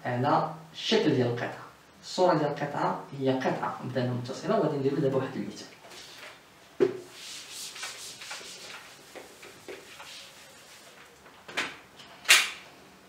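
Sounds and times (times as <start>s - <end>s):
eraser rubbing on whiteboard: 7.0s - 11.2s.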